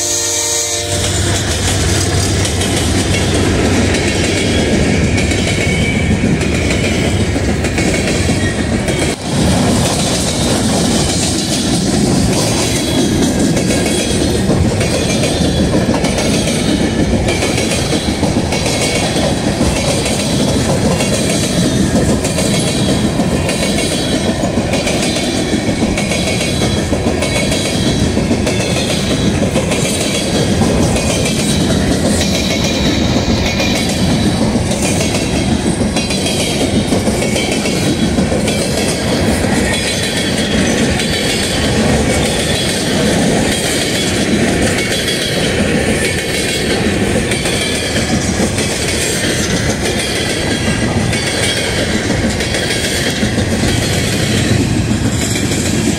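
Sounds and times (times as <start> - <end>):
diesel train horn: 0.0 - 2.0
train wheels clickety-clack: 0.0 - 55.9.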